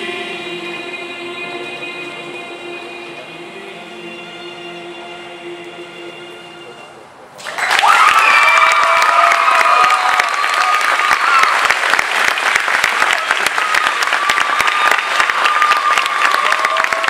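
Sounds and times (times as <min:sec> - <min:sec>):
audience clapping: 0:07.4 - 0:17.0
long whoops: 0:07.5 - 0:11.8, 0:13.2 - 0:17.0.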